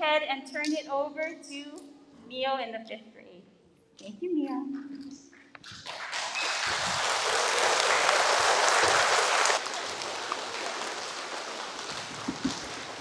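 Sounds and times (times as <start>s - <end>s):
children clapping: 5.6s - 13.0s.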